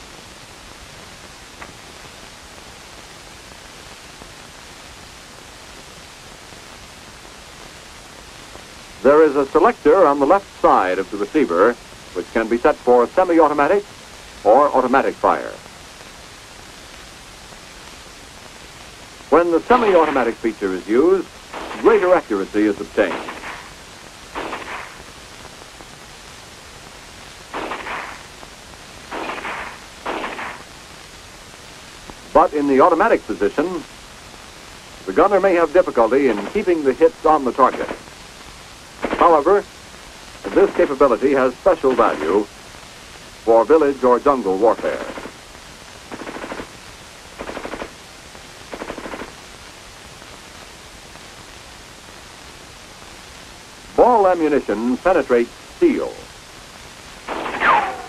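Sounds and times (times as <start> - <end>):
film soundtrack hiss: 0.0 - 58.0
rifle shots: 19.7 - 20.4, 21.5 - 22.2, 23.0 - 23.7, 24.4 - 25.0, 27.5 - 28.3, 29.1 - 30.7, 37.6 - 38.1, 39.0 - 39.5, 40.5 - 41.2, 44.7 - 45.4, 46.1 - 46.8, 47.4 - 48.0, 48.7 - 49.4, 57.3 - 58.0
automatic gunfire bursts: 21.6 - 22.2, 23.0 - 23.7, 24.4 - 25.0, 27.6 - 28.3, 29.1 - 30.7, 37.7 - 38.0, 39.0 - 39.4, 44.8 - 45.4, 46.1 - 46.7, 47.4 - 48.0, 48.7 - 49.4, 57.3 - 58.0.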